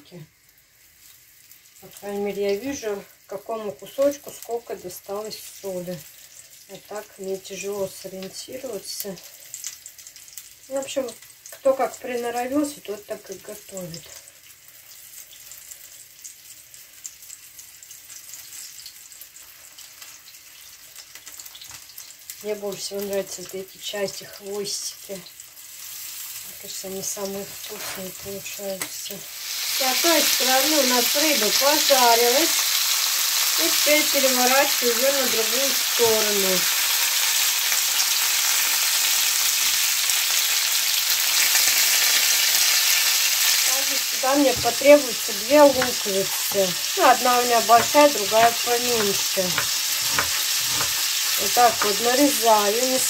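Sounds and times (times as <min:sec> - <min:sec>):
fish frying in oil: 0:00.0 - 0:53.0
spatula ticking: 0:43.9 - 0:53.0.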